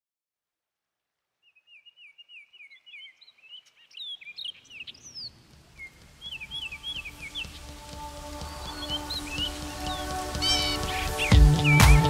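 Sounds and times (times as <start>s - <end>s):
bird whistling and chirping: 1.7s - 7.6s, 8.4s - 11.9s.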